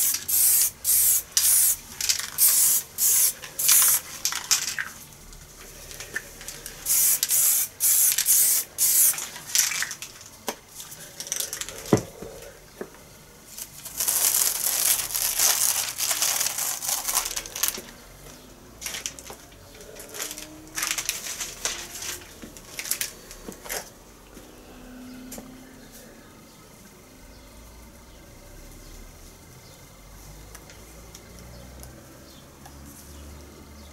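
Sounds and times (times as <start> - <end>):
aerosol spray can hissing: 0.0 - 4.2, 6.6 - 9.3
paper rustling and crinkling: 13.5 - 18.0, 18.8 - 24.0.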